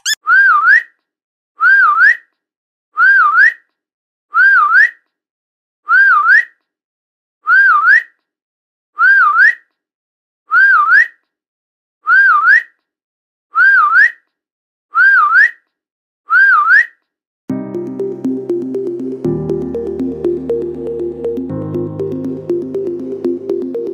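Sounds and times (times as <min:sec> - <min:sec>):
whistled call to a dog: 0:00.0 - 0:00.9, 0:01.6 - 0:02.3, 0:03.0 - 0:03.7, 0:04.3 - 0:05.0, 0:05.8 - 0:06.6, 0:07.4 - 0:08.2, 0:09.0 - 0:09.7, 0:10.5 - 0:11.2, 0:12.0 - 0:12.8, 0:13.5 - 0:14.3, 0:14.9 - 0:15.7, 0:16.3 - 0:17.0
electronic music: 0:17.5 - 0:23.9.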